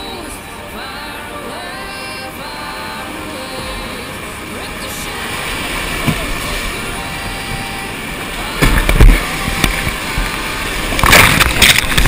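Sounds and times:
waves crashing over boat bow: 0.0s - 12.0s
whitewater rapids rushing: 0.0s - 12.0s.

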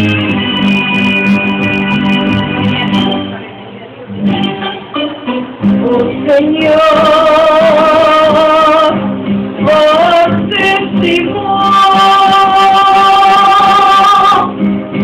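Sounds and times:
live music: 0.0s - 15.0s
person singing into microphone: 4.2s - 9.0s, 9.6s - 14.6s.

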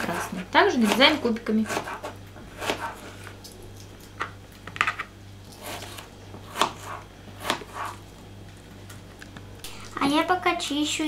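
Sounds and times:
knife chopping on cutting board: 0.0s - 3.3s, 4.8s - 8.0s.

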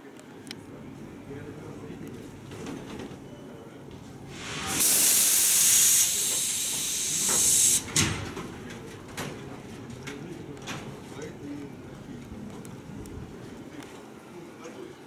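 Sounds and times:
air brake hissing: 4.3s - 8.0s.

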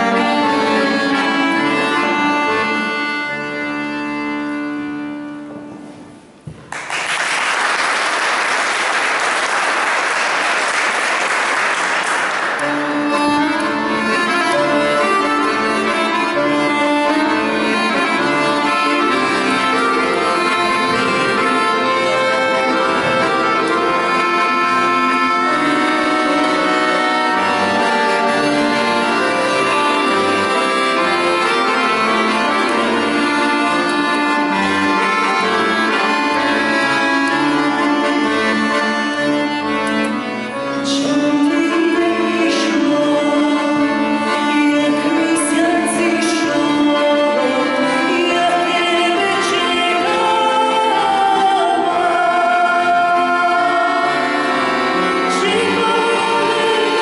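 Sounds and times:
accordion playing solo: 0.0s - 6.4s, 7.6s - 57.0s
applause: 6.6s - 12.8s.

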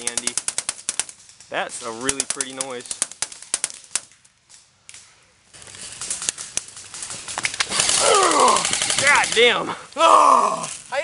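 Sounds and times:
rustling brush and scuffling: 0.0s - 8.0s
falling vocal cry: 7.9s - 8.8s, 10.0s - 10.8s.

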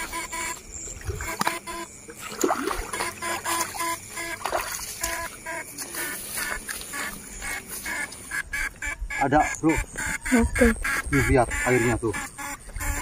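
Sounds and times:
frogs croaking: 0.0s - 13.0s
water splashing and trickling: 0.8s - 7.3s.

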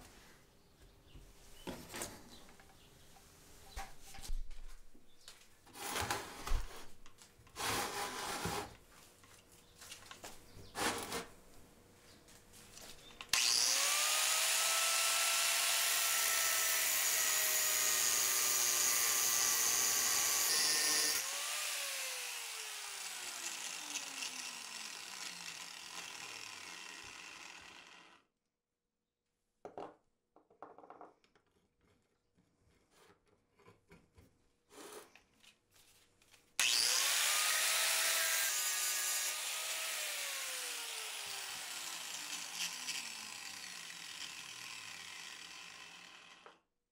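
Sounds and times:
angle grinder whining: 13.3s - 28.2s, 36.6s - 46.6s.

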